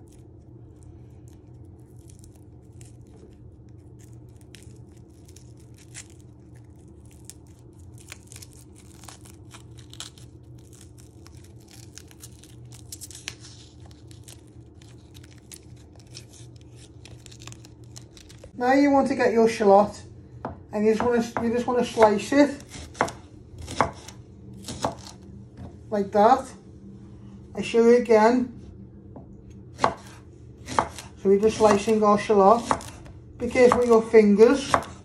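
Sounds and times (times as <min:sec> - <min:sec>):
shallot skin crackling and tearing: 0:00.0 - 0:18.6.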